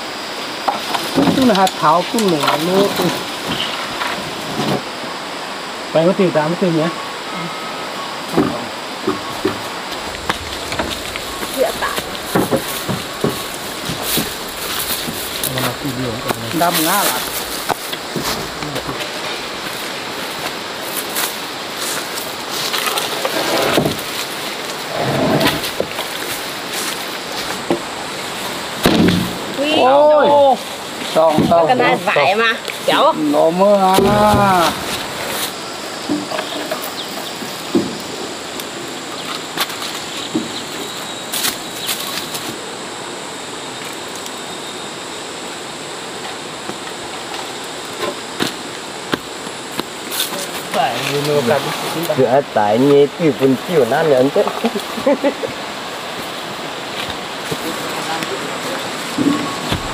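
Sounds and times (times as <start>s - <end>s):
leaves and brush rustling: 0.0s - 59.9s
rushing outdoor background noise: 0.0s - 59.9s
wooden planks knocking: 0.7s - 4.8s, 8.3s - 19.8s, 28.8s - 29.6s, 33.8s - 35.2s, 36.0s - 38.0s, 59.1s - 59.9s
twigs crackling: 9.0s - 42.6s.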